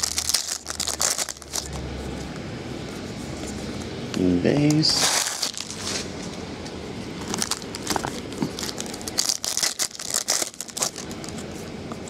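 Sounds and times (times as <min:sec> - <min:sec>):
foil wrapper tearing and crinkling: 0:00.0 - 0:01.7, 0:05.0 - 0:06.0, 0:07.3 - 0:11.2.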